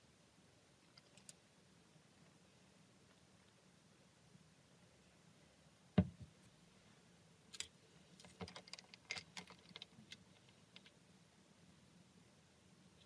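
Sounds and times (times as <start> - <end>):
glass thump on wooden table: 6.0 - 6.3.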